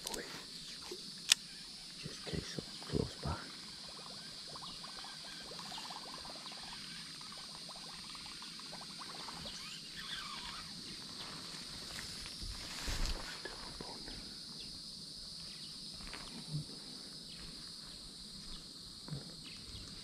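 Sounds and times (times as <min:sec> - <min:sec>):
insects droning: 0:00.0 - 0:20.0.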